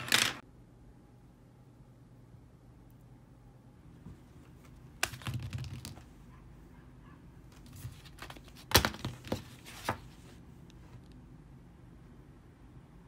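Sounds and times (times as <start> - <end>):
paper rustling: 7.5 - 10.4.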